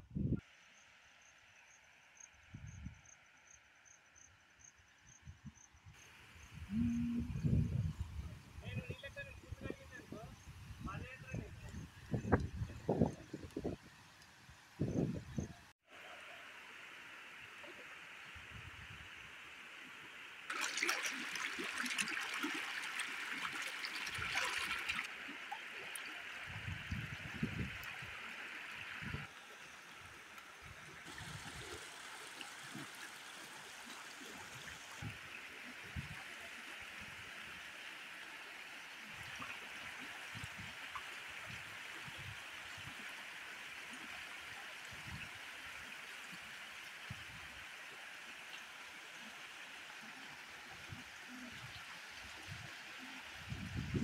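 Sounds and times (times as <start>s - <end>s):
stream rushing over rocks: 20.5s - 29.3s.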